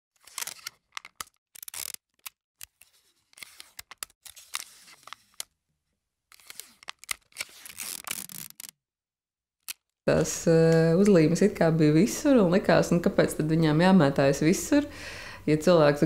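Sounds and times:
paper rustling and tearing: 0.2s - 5.5s, 6.3s - 8.7s.

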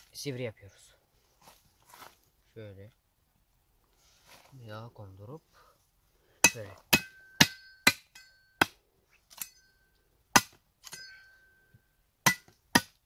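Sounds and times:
cleaver chopping wood: 6.4s - 8.8s, 10.3s - 11.0s, 12.2s - 13.0s
metallic blade ring: 6.5s - 8.6s, 9.3s - 10.0s, 10.8s - 11.8s.

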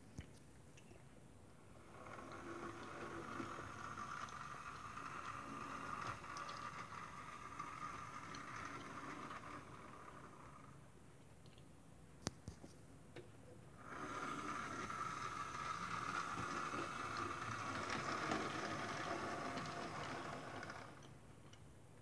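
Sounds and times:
model train motor and wheels: 1.7s - 10.9s, 13.8s - 21.2s.

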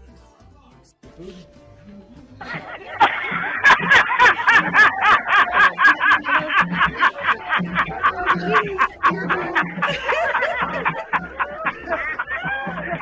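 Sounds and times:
man laughing rapidly: 2.4s - 13.0s.

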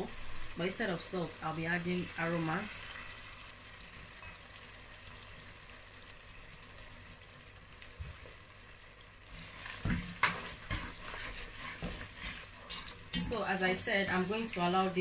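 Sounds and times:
sauce sizzling in a pot: 0.0s - 15.0s
spatula scraping and knocking pot: 9.5s - 13.5s.

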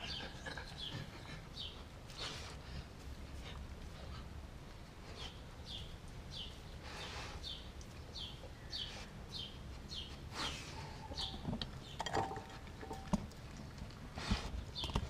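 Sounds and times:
bird chirping: 0.0s - 2.3s, 5.2s - 13.2s, 14.6s - 15.0s
dog snuffling: 0.0s - 11.0s, 13.8s - 15.0s.

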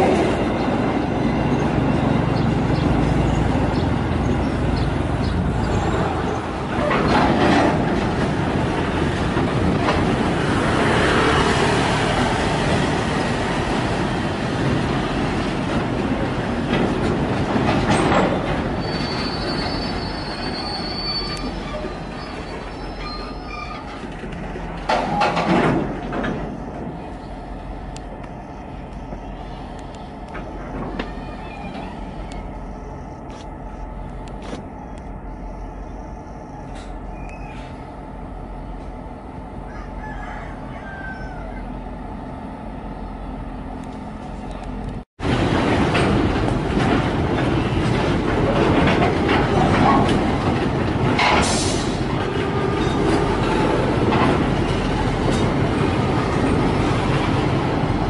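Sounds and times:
train wheels rumbling and clattering: 0.0s - 58.0s
wheel squeal: 18.1s - 24.2s, 30.9s - 32.5s.

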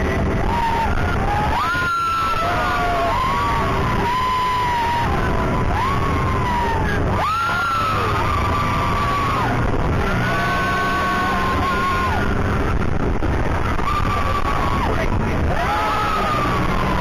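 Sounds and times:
ride car running: 0.0s - 17.0s
riders whooping and yelling: 0.0s - 17.0s.

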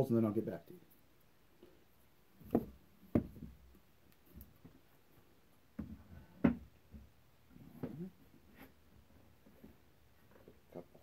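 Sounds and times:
wood and tools knocking on workbench: 2.5s - 3.6s.

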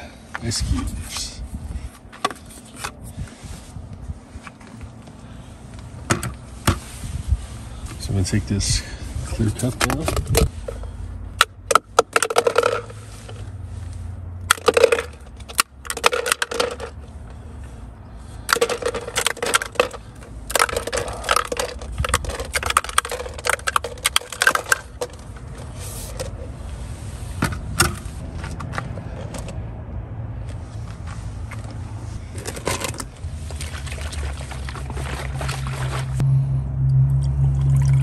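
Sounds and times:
low steady hum: 0.0s - 38.0s
ice cubes clattering in plastic: 11.7s - 13.0s, 14.5s - 17.0s, 18.5s - 25.6s.

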